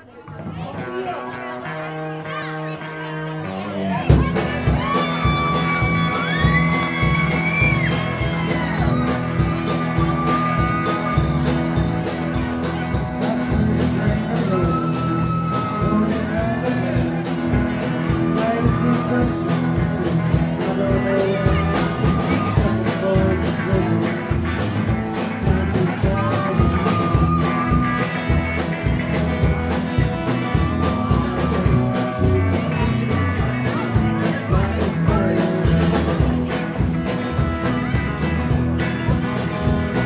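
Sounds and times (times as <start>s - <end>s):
live rock band playing: 0.2s - 40.0s
lead guitar bends: 0.3s - 40.0s.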